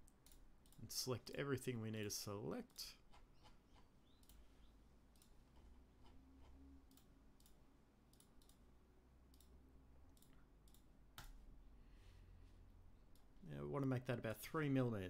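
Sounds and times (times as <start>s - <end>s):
computer mouse clicks: 0.0s - 0.8s, 3.1s - 4.5s, 5.1s - 8.7s, 9.3s - 11.4s.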